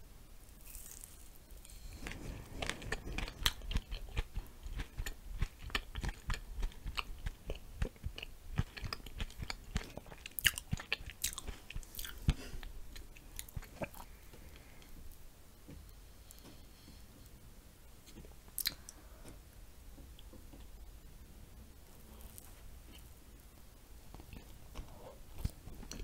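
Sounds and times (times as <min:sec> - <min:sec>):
wet chewing mouth sounds: 0:01.8 - 0:14.1.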